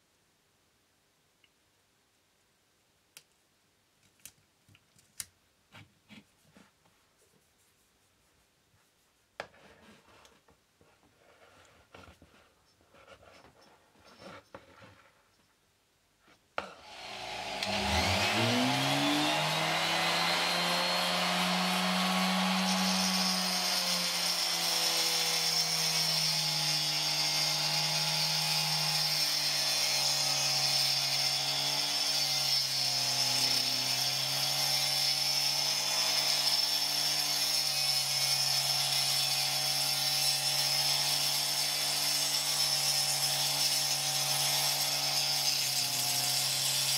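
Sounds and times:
rotary tool motor whine: 16.8 - 39.0.

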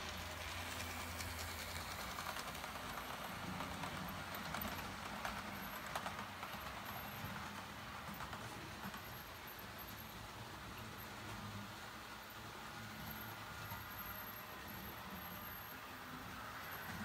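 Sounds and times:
train wheels clattering on rails: 0.0 - 12.1
model train motor hum: 0.0 - 17.0.

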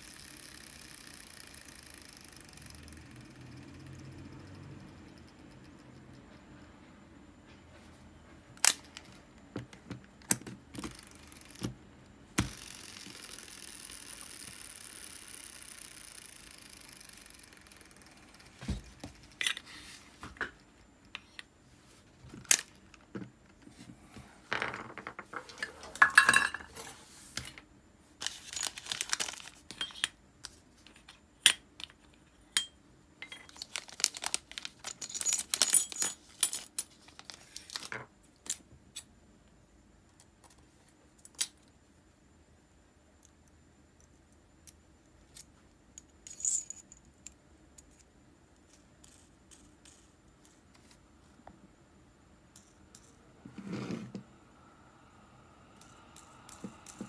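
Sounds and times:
fishing reel metallic clicks: 0.0 - 3.9, 12.5 - 18.5
fishing reel rattling: 0.0 - 4.2, 10.8 - 11.7, 12.4 - 18.6
fishing reel spool whirring: 0.0 - 5.6, 12.4 - 18.6.

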